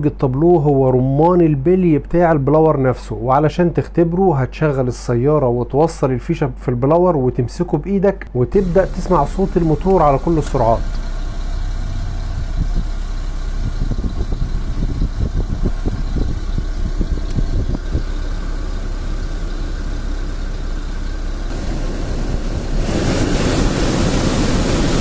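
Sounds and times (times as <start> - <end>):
low engine idle: 8.4 - 22.8
blower fan air rush: 8.4 - 25.0.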